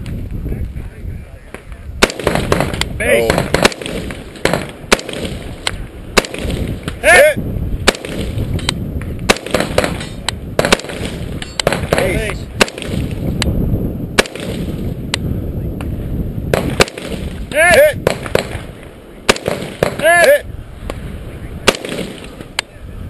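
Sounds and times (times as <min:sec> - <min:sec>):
rifle gunshots: 0:02.0 - 0:07.0, 0:07.8 - 0:08.5, 0:09.3 - 0:13.2, 0:14.1 - 0:14.9, 0:16.5 - 0:20.4, 0:21.6 - 0:22.5.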